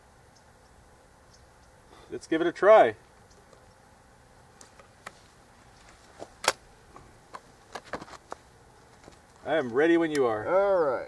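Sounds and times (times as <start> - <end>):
shotgun handling clicks and knocks: 6.1 - 9.3.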